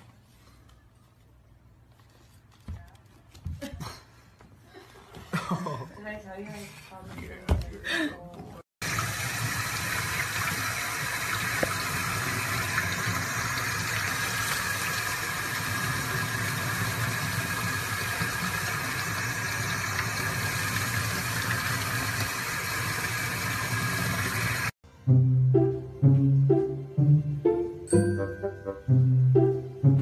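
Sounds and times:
water running from faucet: 8.8s - 24.8s.

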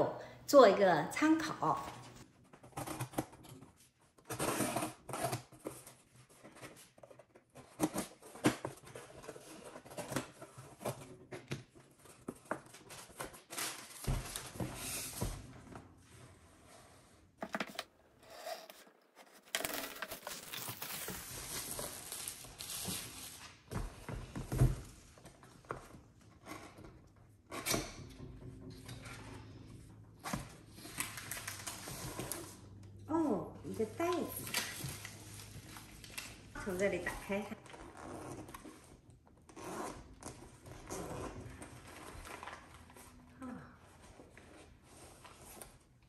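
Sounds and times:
cardboard flaps scraping: 17.4s - 25.1s
plastic wrapping rustling: 18.4s - 23.7s.

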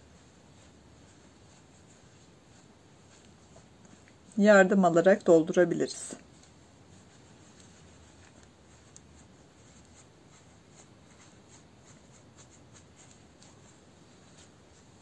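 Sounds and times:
stuffing rustling and scratching: 0.0s - 15.0s.

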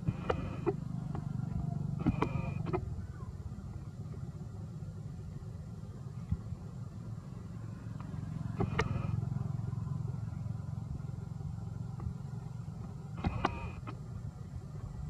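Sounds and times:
motor traffic rumble: 0.0s - 15.0s
sharp clicks: 2.0s - 2.8s, 8.6s - 9.0s, 13.2s - 14.0s.

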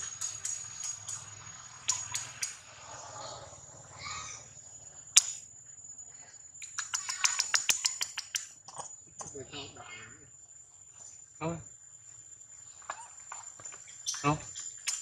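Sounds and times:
high insect trill: 0.0s - 15.0s
sharp snap: 5.2s - 5.4s
crackling clicks: 6.6s - 8.8s.

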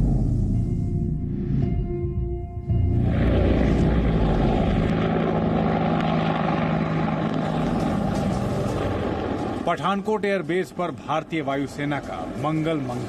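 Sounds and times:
helicopter engines and rotor: 2.6s - 13.0s.

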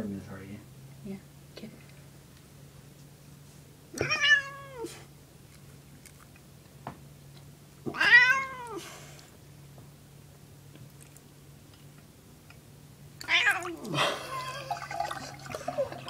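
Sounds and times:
cat meowing: 4.0s - 5.0s, 7.9s - 8.8s, 13.2s - 14.0s.

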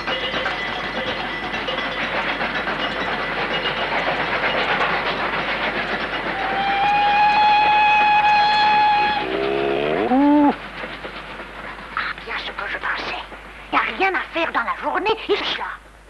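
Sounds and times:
steam engine clatter and hiss: 0.0s - 16.0s
loud steady whistle: 6.4s - 9.4s.

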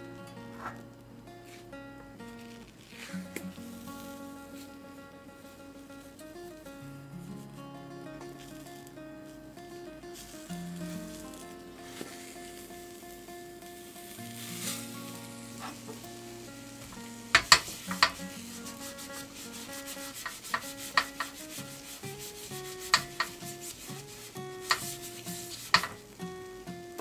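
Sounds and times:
light sizzle: 0.0s - 27.0s
paper towel rubbing hot pan: 2.3s - 4.8s, 10.1s - 12.8s, 14.3s - 26.2s
sharp knocks on pan: 17.4s - 18.2s, 20.2s - 21.4s, 22.9s - 23.4s, 25.7s - 26.0s.

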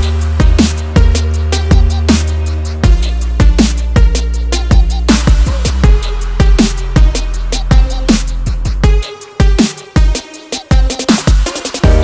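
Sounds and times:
deep kick drums: 0.0s - 9.6s
electronic background music: 0.0s - 12.0s
hi-hats: 0.0s - 12.0s.

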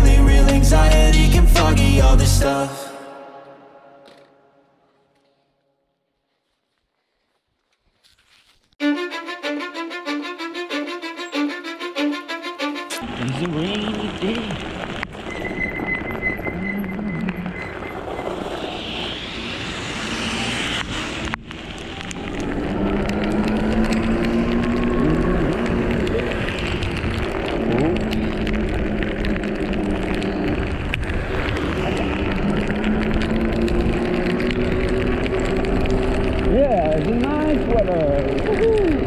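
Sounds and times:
wind and road noise: 13.0s - 39.0s.

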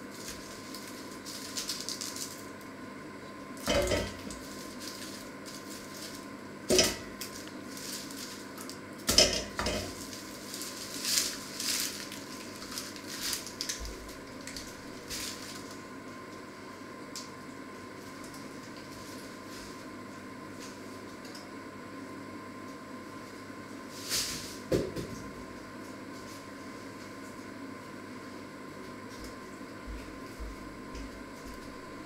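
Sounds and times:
mesh bag rustling: 7.2s - 8.7s, 10.0s - 15.8s.

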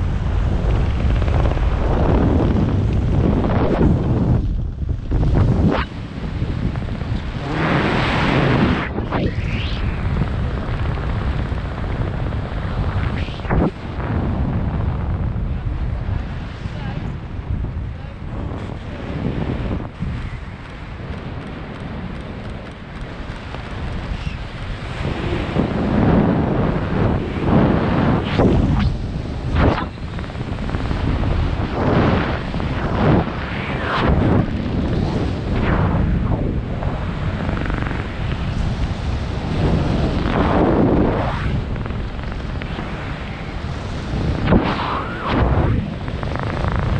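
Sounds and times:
wind buffeting microphone: 0.0s - 46.9s
brief whoosh: 7.4s - 10.2s.

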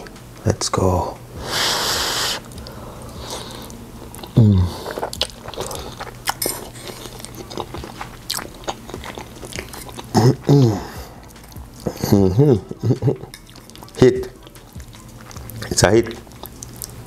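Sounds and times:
man blowing on food: 1.4s - 3.8s
chewing: 2.4s - 17.0s.

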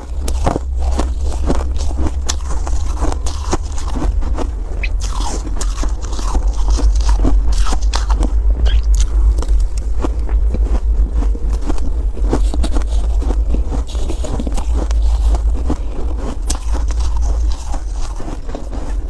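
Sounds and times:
ice crunched and chewed: 0.0s - 19.0s
steady low rumble: 0.0s - 19.0s.

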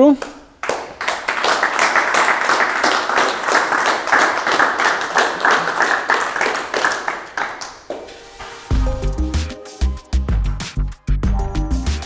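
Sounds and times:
audience applauding: 0.6s - 8.4s.

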